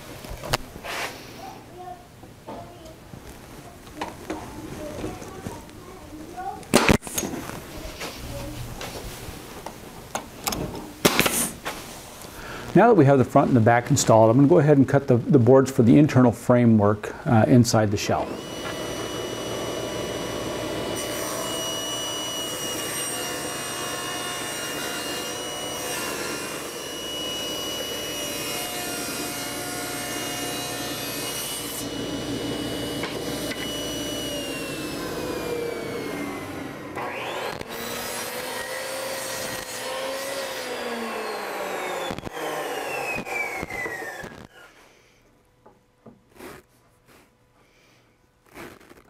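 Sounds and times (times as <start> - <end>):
miter saw cutting: 18.2 - 44.8
table saw ripping a board: 18.3 - 44.8.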